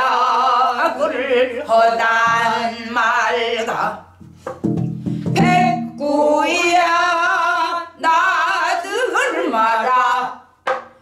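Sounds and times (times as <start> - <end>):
woman singing with wide vibrato: 0.0 - 4.2, 5.2 - 10.6
woman breathing: 4.4 - 5.4.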